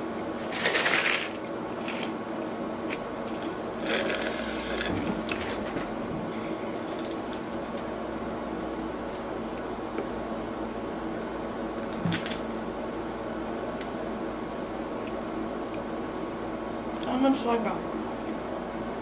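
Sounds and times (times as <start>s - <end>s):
air conditioner hum: 0.0s - 19.0s
crackling eating noise: 2.8s - 8.0s.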